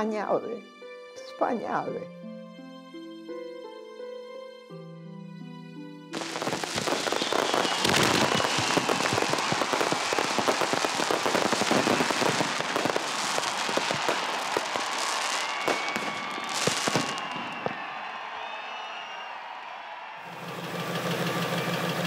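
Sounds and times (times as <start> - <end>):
loud firework bangs: 6.2 - 18.4
fireworks crackling and popping: 6.2 - 18.8
fireworks whistling: 6.2 - 19.5.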